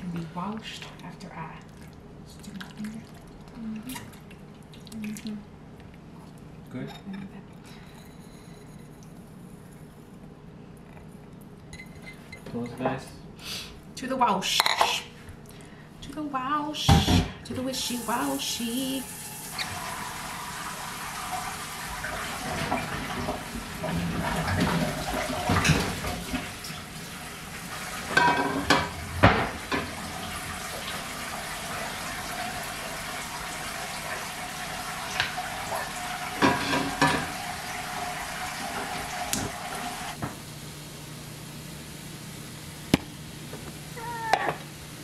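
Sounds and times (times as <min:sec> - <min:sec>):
tap water running into sink: 0:17.9 - 0:40.2
dishes clattering: 0:22.4 - 0:26.4, 0:28.1 - 0:29.9, 0:36.4 - 0:37.4.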